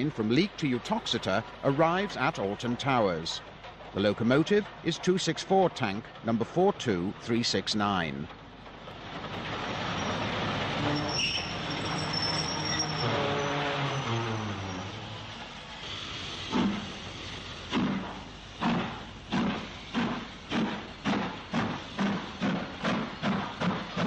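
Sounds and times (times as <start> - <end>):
steam locomotive exhaust beats: 0.0 - 24.0
steady steam hiss: 14.8 - 24.0.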